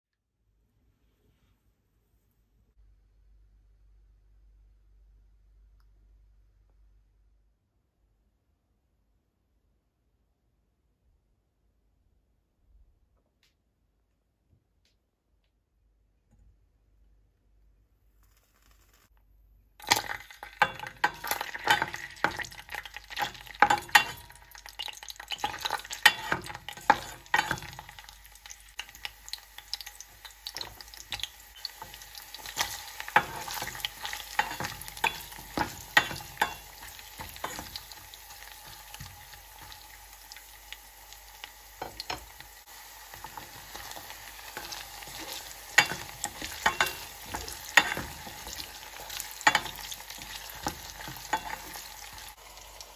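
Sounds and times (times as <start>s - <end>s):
garlic sizzling in hot oil: 19.8s - 52.9s
spatula scraping metal pot: 25.3s - 27.7s, 30.6s - 38.0s, 43.3s - 51.9s.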